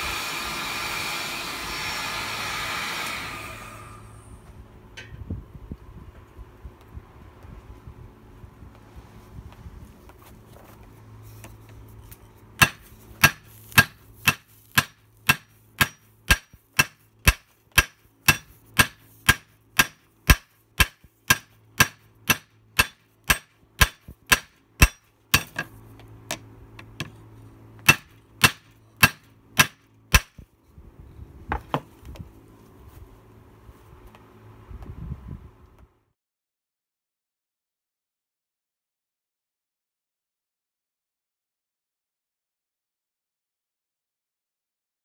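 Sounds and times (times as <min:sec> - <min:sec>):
hammer striking hot metal: 0:12.6 - 0:25.7, 0:27.8 - 0:30.4.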